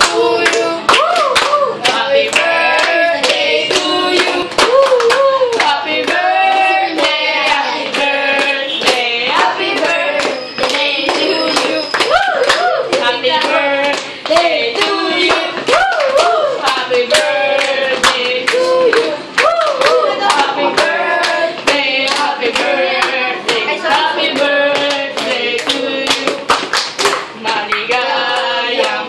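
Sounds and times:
children clapping a steady beat: 0.0s - 29.0s
voices singing a birthday song: 0.0s - 29.0s.

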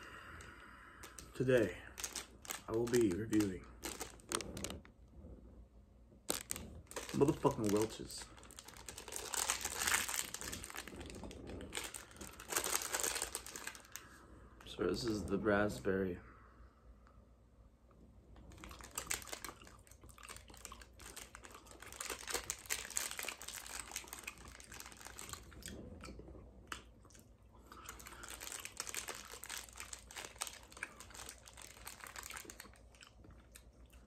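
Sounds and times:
plastic pouch crinkling: 1.0s - 4.9s, 6.2s - 14.1s, 18.5s - 25.7s, 27.8s - 33.1s
chewing with wet mouth clicks: 26.0s - 27.8s.

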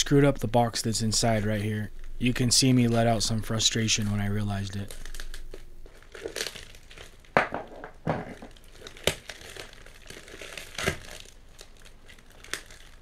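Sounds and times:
wrapping paper crinkling and tearing: 2.8s - 7.4s, 8.3s - 13.0s.

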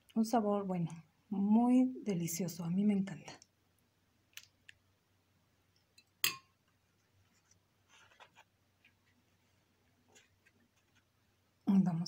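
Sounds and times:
spoon tapping: 6.0s - 6.5s
soft scraping and handling: 6.9s - 11.1s.

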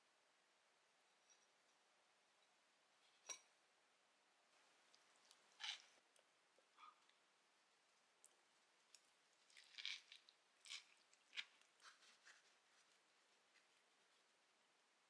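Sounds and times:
faint crunching eating sounds: 4.6s - 7.2s, 8.1s - 14.4s.

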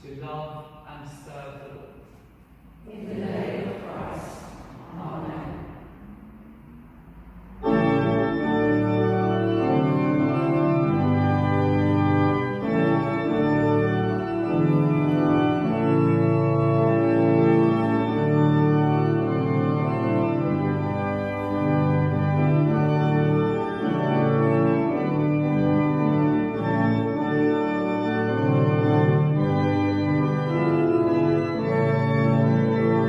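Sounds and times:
pipe organ playing chords: 7.4s - 33.0s.

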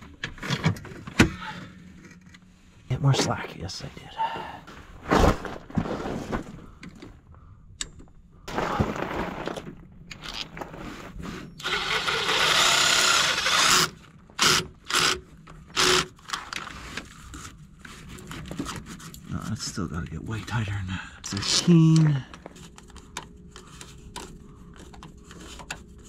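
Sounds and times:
cordless power driver spinning: 11.6s - 15.2s.

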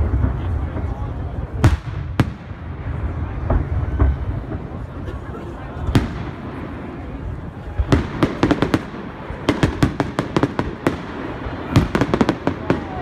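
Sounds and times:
fireworks cracking and banging: 0.0s - 13.0s.

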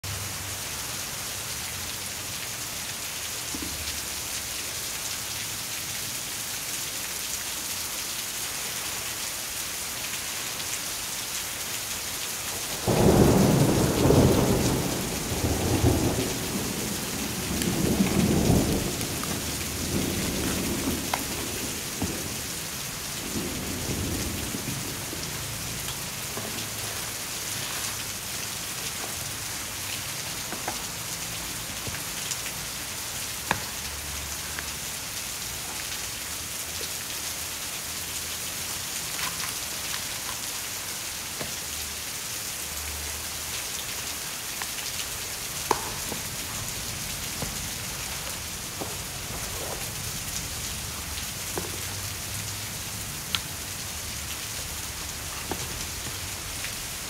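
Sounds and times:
steady rain falling: 0.0s - 57.0s
thunder rumbling: 12.8s - 26.8s.

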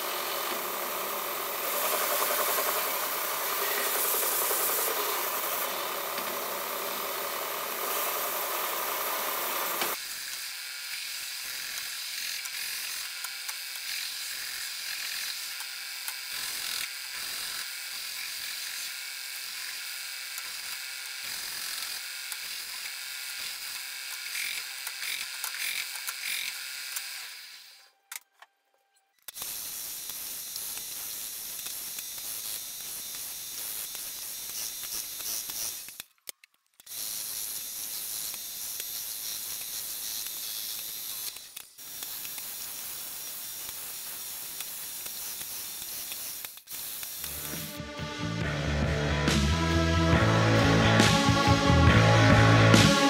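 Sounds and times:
belt sander grinding wood: 0.0s - 27.5s.

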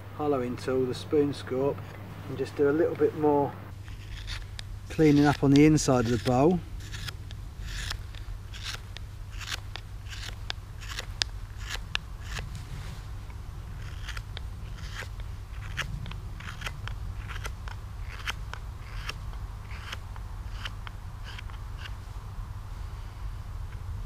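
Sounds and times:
knife slicing wood shavings: 3.9s - 12.4s, 13.8s - 21.9s.

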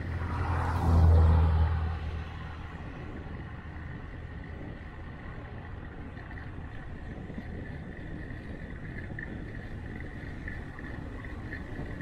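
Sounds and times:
vehicle passing close by: 0.0s - 3.4s
wind and road noise: 0.0s - 12.0s.

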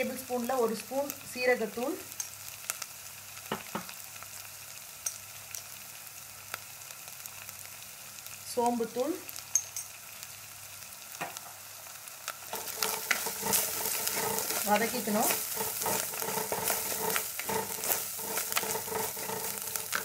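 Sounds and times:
onions sizzling in oil: 0.0s - 20.0s
wooden spatula scraping a pot: 12.5s - 20.0s.

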